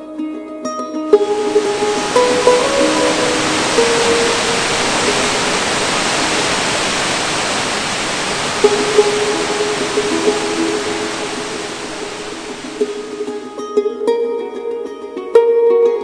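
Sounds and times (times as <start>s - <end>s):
music notes: 1.1s - 14.0s
waterfall rushing: 1.2s - 13.6s.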